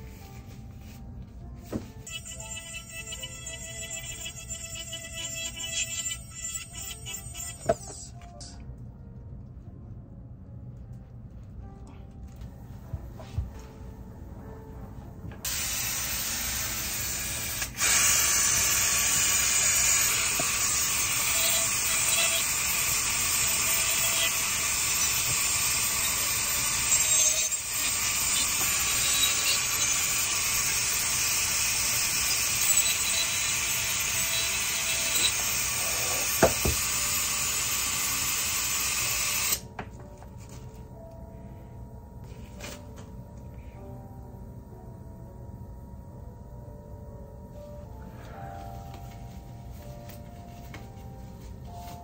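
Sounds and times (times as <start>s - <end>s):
dental handpiece grinding: 2.0s - 7.9s, 18.6s - 39.6s.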